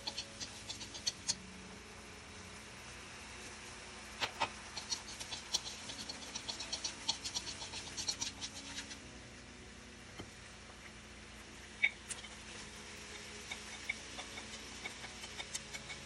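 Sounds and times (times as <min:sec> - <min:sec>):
chopsticks tapping a pan: 0:00.0 - 0:01.4, 0:13.0 - 0:16.0
food frying in hot oil: 0:00.0 - 0:09.2, 0:11.6 - 0:16.0.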